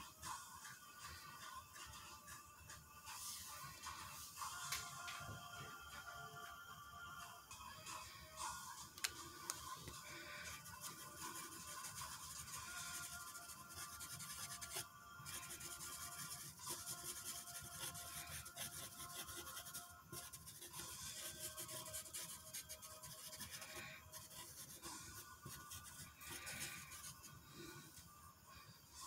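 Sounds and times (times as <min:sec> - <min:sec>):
pen scratching on paper: 0:10.1 - 0:27.3.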